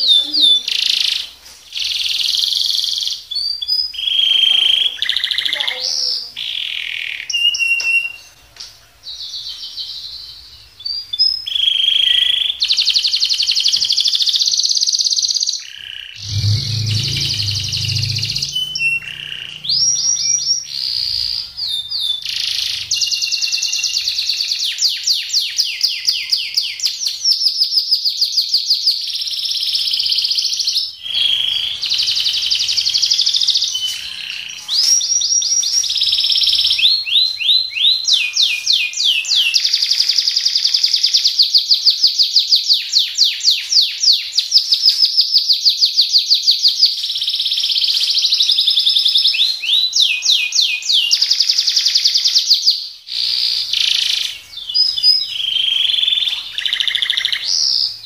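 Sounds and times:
canary singing trills: 0.0s - 8.5s, 9.1s - 58.0s.

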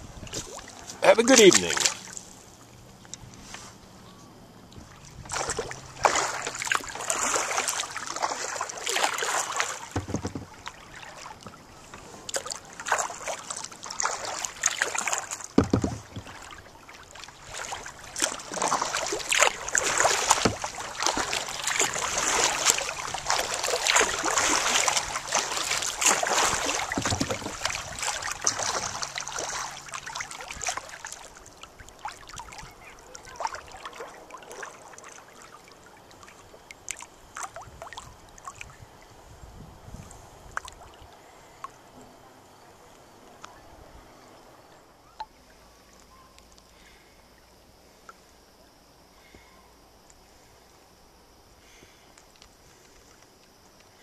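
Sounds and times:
paddle splashing water: 0.0s - 3.9s, 4.6s - 39.2s, 39.8s - 42.2s
water lapping against hull: 0.0s - 54.0s
low thumps: 10.0s - 10.6s.

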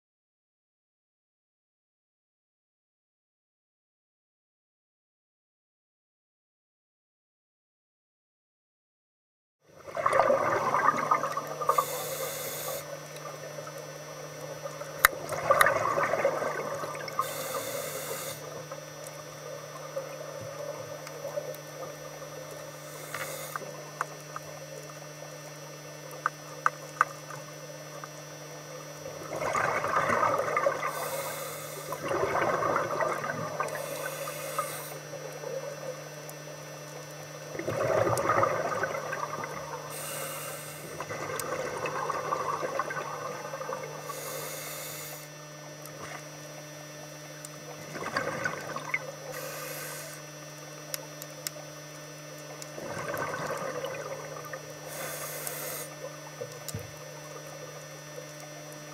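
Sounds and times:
steady low hum: 9.6s - 58.9s
bubbling exhaust: 9.8s - 24.2s, 28.9s - 35.7s, 37.5s - 45.2s, 52.6s - 58.2s
regulator inhale hiss: 11.6s - 13.0s, 17.2s - 18.6s, 22.7s - 23.8s, 30.8s - 32.0s, 33.7s - 35.2s, 39.9s - 41.1s, 44.0s - 45.3s, 49.3s - 50.2s, 54.8s - 56.1s
small clicks: 22.5s - 24.9s.

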